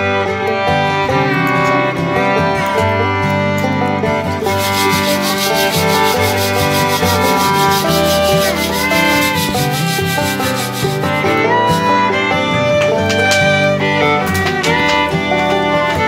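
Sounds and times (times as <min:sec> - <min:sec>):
fiddle music: 0:00.0 - 0:16.0
sand hissing through a colander: 0:04.4 - 0:11.9.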